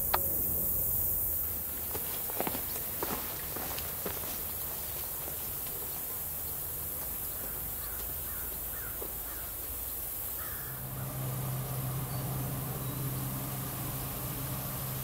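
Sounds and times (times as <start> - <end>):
steady low hum: 0.0 - 5.6, 9.5 - 15.0
crow cawing: 7.8 - 9.5, 10.4 - 10.8.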